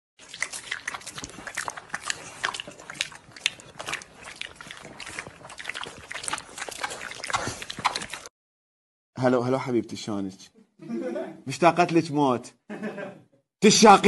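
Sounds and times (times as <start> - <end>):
wet chewing and smacking: 0.2 - 8.3.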